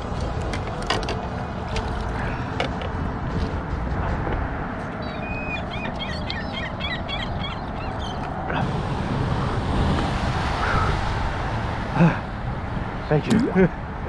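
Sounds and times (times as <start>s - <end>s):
motorboat passing: 0.0s - 14.0s
birds chirping: 5.0s - 8.6s.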